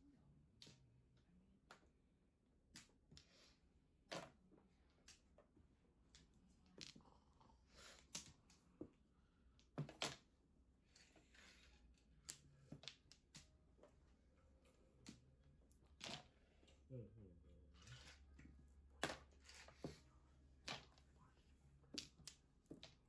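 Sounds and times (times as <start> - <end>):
mahjong tiles clacking on table: 10.9 - 13.7, 21.9 - 23.0.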